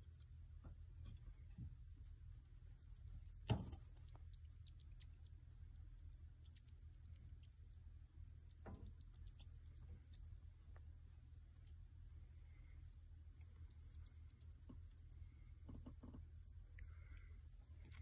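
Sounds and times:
hamster squeaking: 2.4 - 11.9, 13.4 - 16.3.

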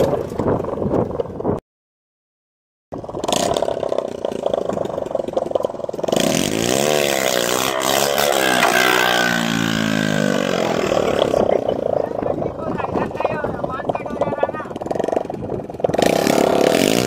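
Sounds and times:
motorcycle engine revving: 3.0 - 12.3, 13.7 - 17.0.

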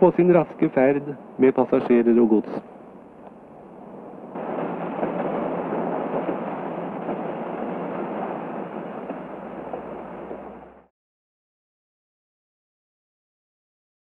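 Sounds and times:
train wheels rolling on rails: 0.0 - 10.9.

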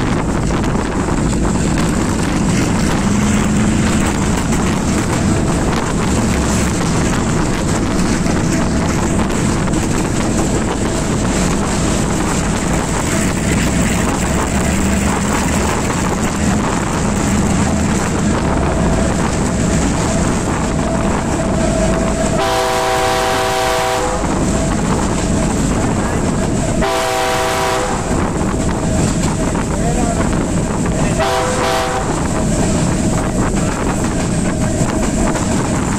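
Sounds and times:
locomotive engine droning: 0.0 - 35.9
wind noise on microphone: 0.0 - 35.9
train horn: 20.8 - 24.6, 26.7 - 28.3, 31.1 - 32.4.

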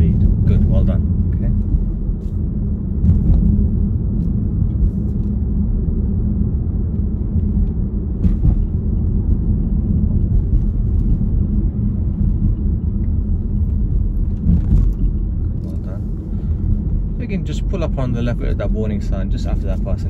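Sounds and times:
car engine and tyres rumbling: 0.0 - 20.0.

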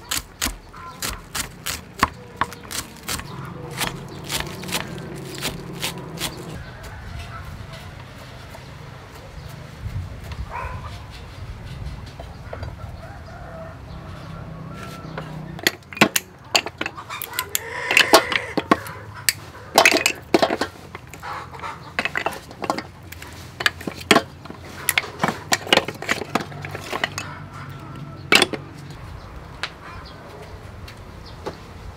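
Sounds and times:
chicken calling: 0.6 - 8.0, 16.9 - 19.8, 20.7 - 22.0
clam shells clattering in metal bowl: 15.6 - 21.2, 24.9 - 27.3.

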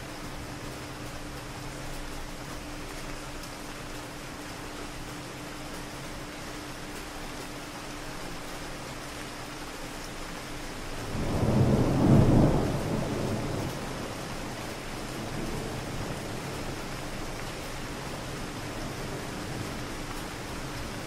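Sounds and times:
steady rain: 0.0 - 21.0
distant thunder rumble: 11.1 - 16.6.

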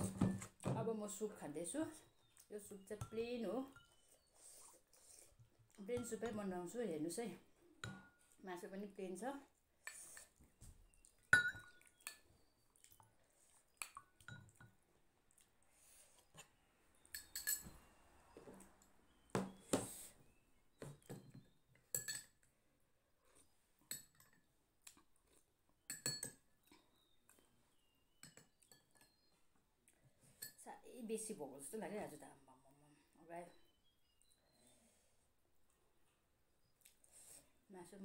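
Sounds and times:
spoons clinking on ceramic bowls: 11.3 - 12.3, 13.8 - 14.8, 17.1 - 17.8, 21.8 - 22.4, 25.9 - 26.4.

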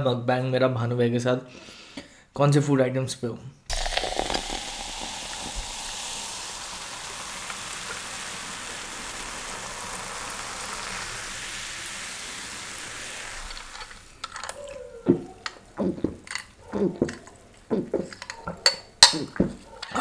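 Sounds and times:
foam fizzing: 3.7 - 18.3
cola pouring into glass: 3.7 - 19.6.

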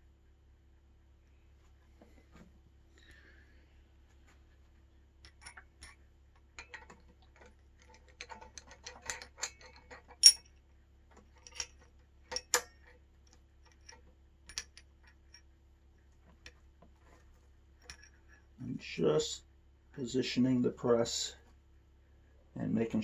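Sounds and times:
metal clicks and taps: 5.2 - 10.5, 11.4 - 15.4.

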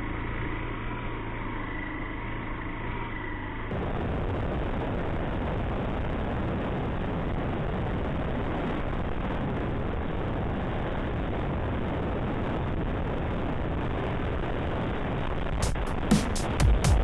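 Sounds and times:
motorcycle engine and tyre noise: 0.0 - 17.0
wind rushing on microphone: 3.7 - 16.1.

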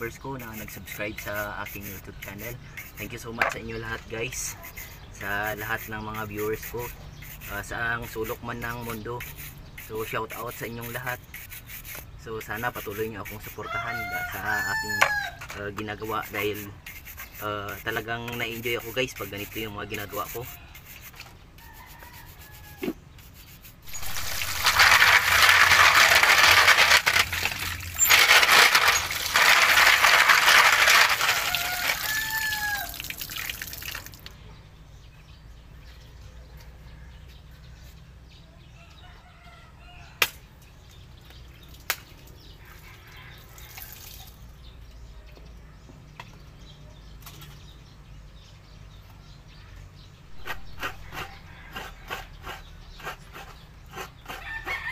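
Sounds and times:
coconut cracking: 23.8 - 34.3
water running and splashing: 23.9 - 34.3.

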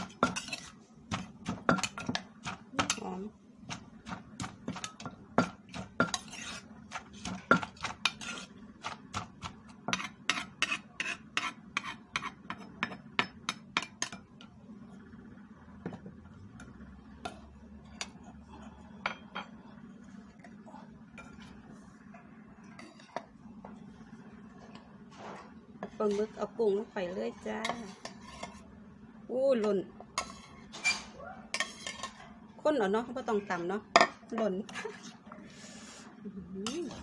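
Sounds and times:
pestle knocking in clay mortar: 1.1 - 3.1, 3.7 - 6.3, 6.9 - 14.0.

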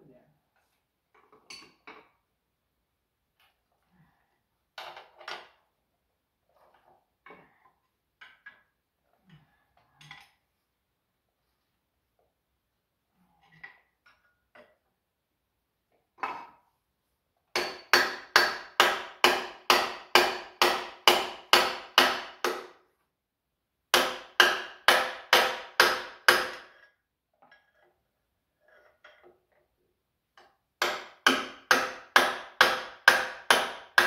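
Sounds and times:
hammer pounding on metal: 17.6 - 22.8, 23.9 - 26.8, 30.8 - 34.0.

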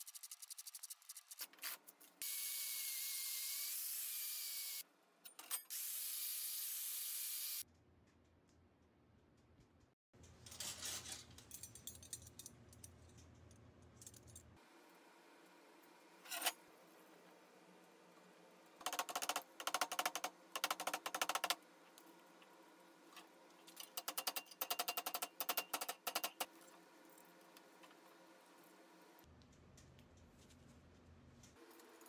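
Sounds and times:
steel wire pieces clinking: 10.2 - 14.5.

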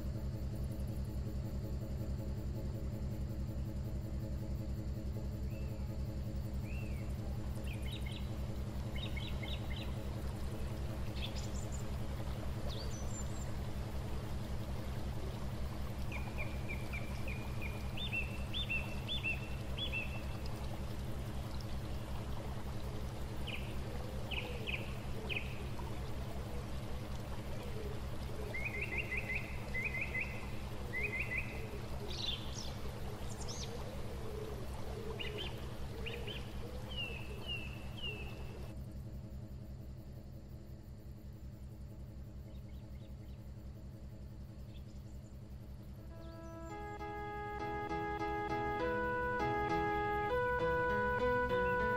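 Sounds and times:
boat engine droning: 0.0 - 38.8, 41.4 - 51.9
birds chirping: 6.6 - 38.7, 46.1 - 51.9.

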